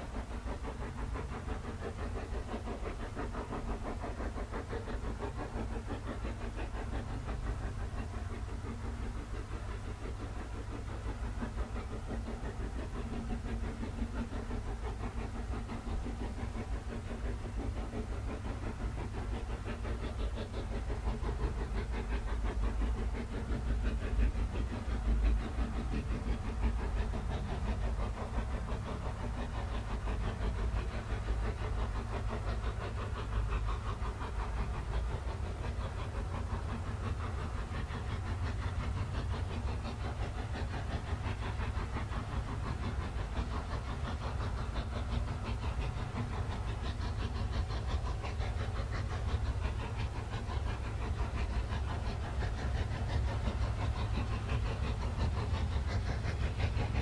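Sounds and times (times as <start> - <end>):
steam locomotive exhaust beats: 0.0 - 57.0.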